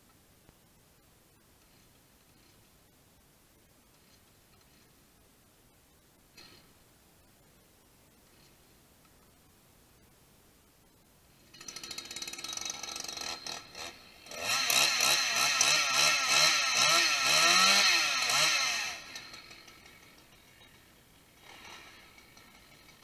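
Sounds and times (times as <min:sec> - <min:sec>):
chainsaw idling and revving: 0:11.4 - 0:23.0.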